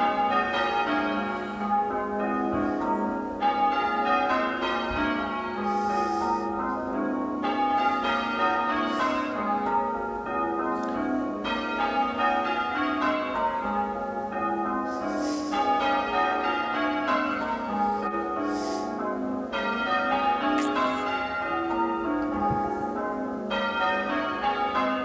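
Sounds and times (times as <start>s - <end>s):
church bells ringing changes: 0.0s - 25.0s.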